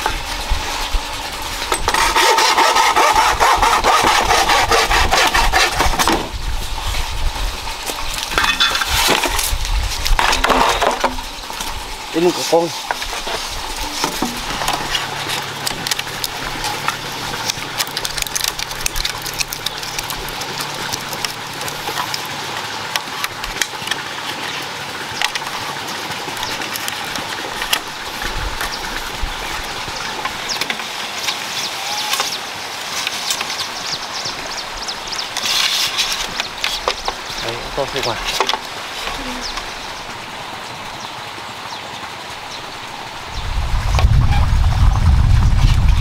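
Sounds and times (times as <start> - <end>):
leaves rustling: 0.0 - 46.0
steady outdoor hiss: 0.0 - 46.0
bamboo poles knocking: 10.2 - 11.2, 13.8 - 22.2, 38.3 - 39.2.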